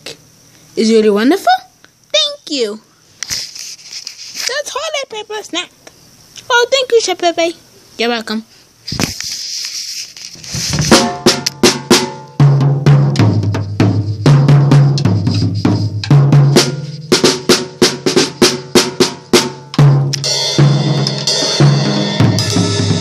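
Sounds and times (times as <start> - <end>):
cymbals washing: 10.2 - 23.0
drum strikes on toms and snare: 10.7 - 23.0.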